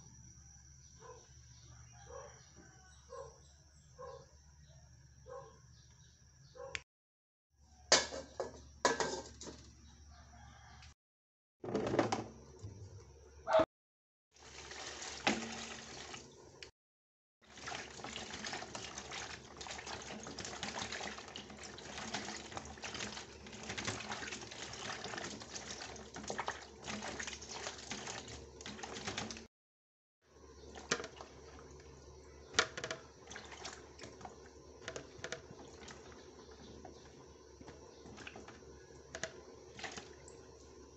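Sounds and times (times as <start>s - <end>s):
pieces knocking against basin: 7.9s - 9.7s, 32.5s - 40.1s
water pouring into plastic basin: 14.3s - 16.4s, 17.4s - 29.5s, 32.6s - 40.6s.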